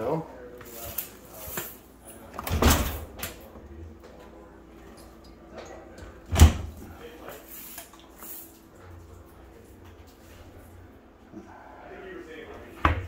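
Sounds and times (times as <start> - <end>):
dishwasher door clunk: 6.3 - 6.8.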